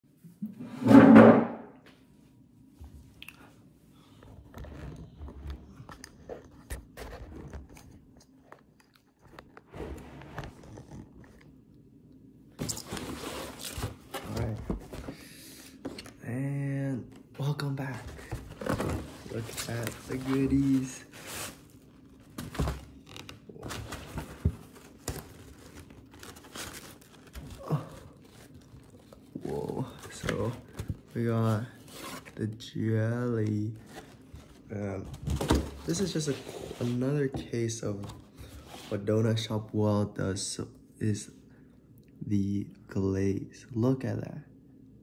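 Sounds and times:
cardboard box rustling: 17.8s - 32.4s.

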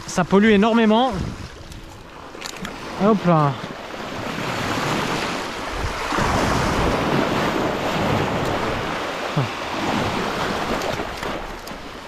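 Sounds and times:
wind buffeting microphone: 0.0s - 12.0s
surf breaking over rocks: 2.7s - 12.0s.

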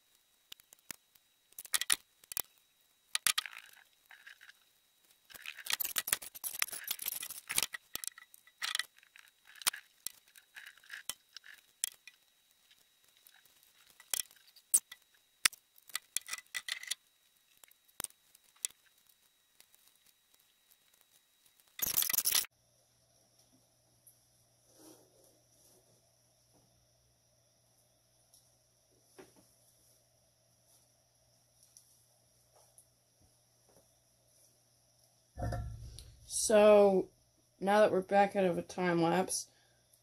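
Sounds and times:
branches rustling and clicking: 5.2s - 20.1s.

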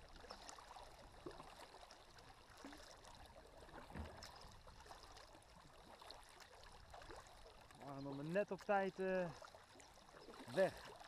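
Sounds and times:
paddles dipping and dripping: 0.0s - 11.0s
soft low knock: 3.8s - 4.4s.

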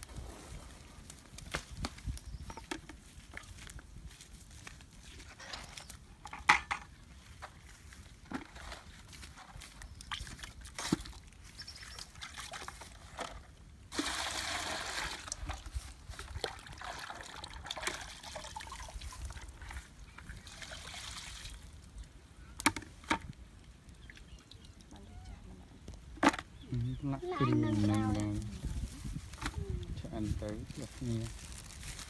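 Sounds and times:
wood fire crackling and popping: 0.0s - 3.8s.

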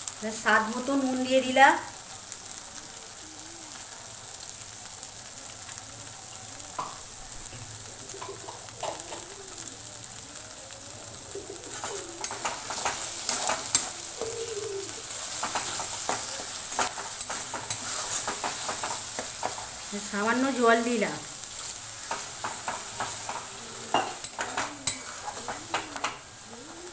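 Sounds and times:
paste sizzling in a pan: 0.0s - 26.9s
spatula scraping a pan: 11.6s - 20.6s, 21.4s - 26.9s.

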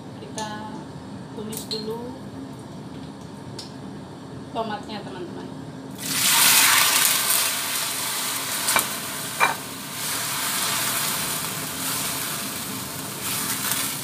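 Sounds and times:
food sizzling in hot oil: 6.0s - 14.0s
spatula knocking against wok: 8.7s - 9.6s.

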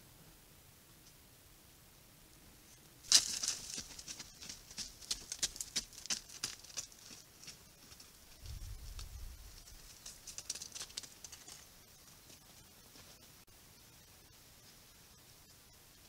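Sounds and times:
hooves scuffing on dry ground: 3.0s - 13.3s.

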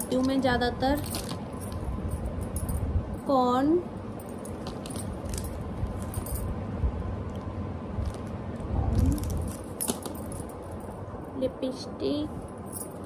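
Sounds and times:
bangles clinking: 0.0s - 3.3s, 4.1s - 6.6s, 9.2s - 11.0s, 12.4s - 13.0s
hands handling plastic packaging: 7.3s - 10.4s.

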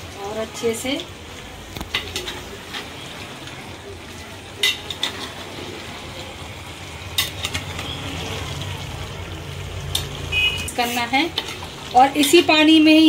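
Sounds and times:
spoon stirring in metal pot: 1.8s - 3.0s, 4.6s - 5.7s, 7.1s - 8.0s, 9.9s - 12.5s.

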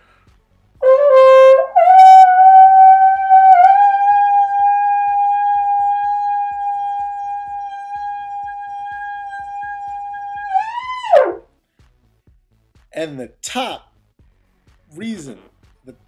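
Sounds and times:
solo trombone notes: 0.8s - 11.4s.

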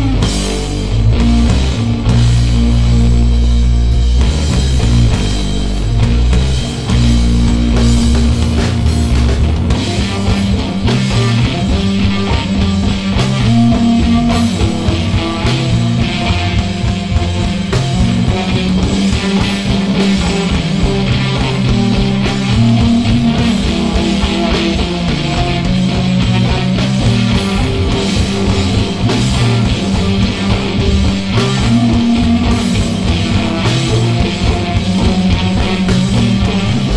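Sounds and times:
drum kit: 0.0s - 36.9s
electric guitar: 0.0s - 36.9s.

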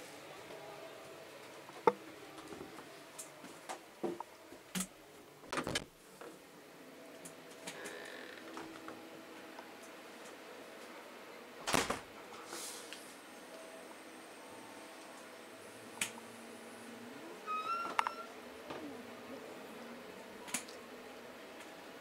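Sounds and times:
faint train carriage hum: 6.0s - 22.0s.

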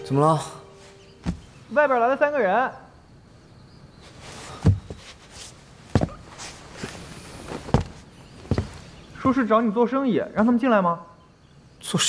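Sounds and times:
boot footsteps on wooden floor: 1.2s - 1.7s, 4.5s - 9.4s.

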